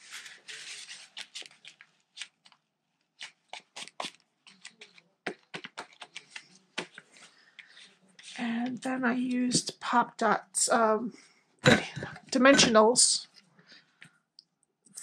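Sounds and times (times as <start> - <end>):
paper rustling and crinkling: 0.0 - 8.4.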